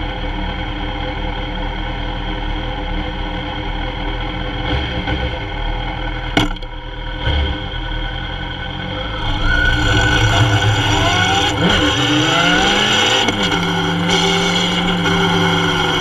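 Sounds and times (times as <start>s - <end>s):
motorcycle engine accelerating: 3.4s - 16.0s.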